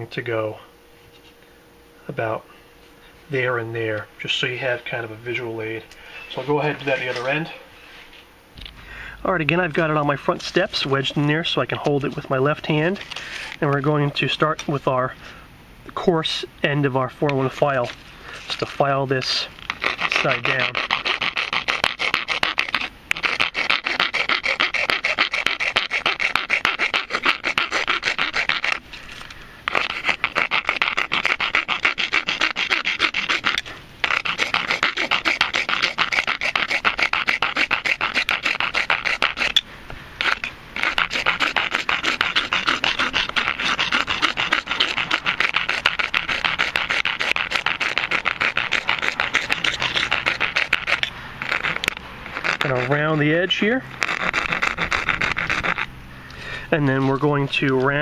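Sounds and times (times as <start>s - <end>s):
file rasping plastic pipe: 18.5s - 28.8s, 29.7s - 39.6s, 40.2s - 55.9s, 56.8s - 57.8s.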